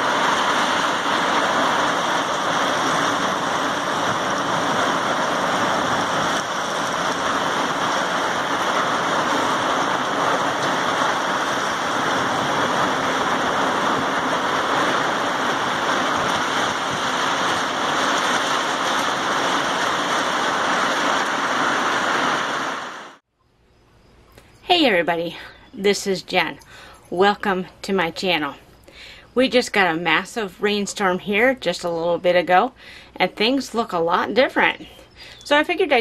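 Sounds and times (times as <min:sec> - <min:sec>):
heavy rain: 0:00.0 - 0:23.2.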